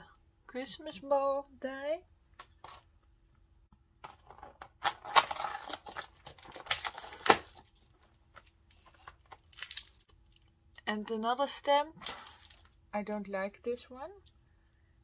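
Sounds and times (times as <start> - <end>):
plastic sleeve crinkling: 4.2 - 10.5, 12.0 - 12.8.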